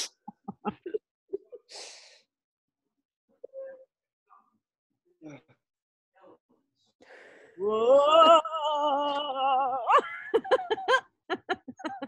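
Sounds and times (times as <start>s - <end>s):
people laughing: 0.3s - 1.6s, 9.8s - 12.0s.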